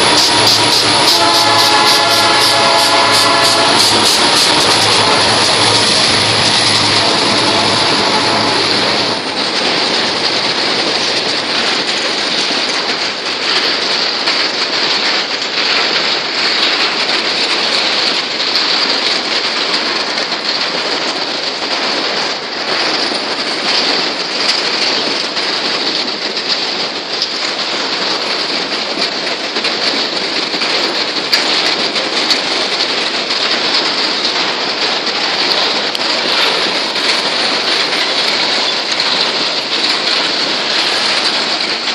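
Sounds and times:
freight train wheels on rail: 0:00.0 - 0:41.9.

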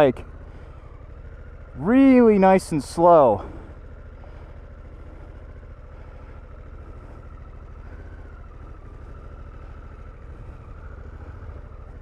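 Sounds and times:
motorcycle engine at low revs: 0:00.0 - 0:12.0.

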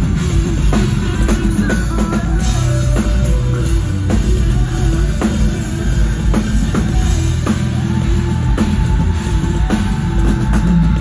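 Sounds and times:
live rock band playing: 0:00.0 - 0:11.0.

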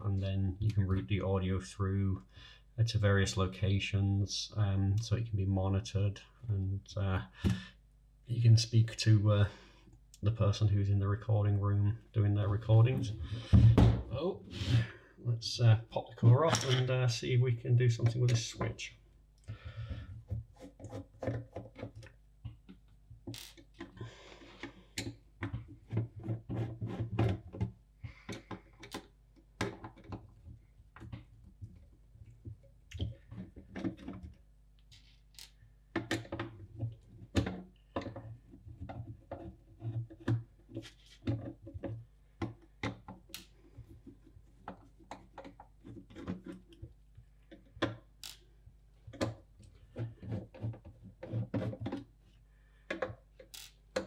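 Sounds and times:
screws clicking and knocking: 0:34.9 - 0:36.3.

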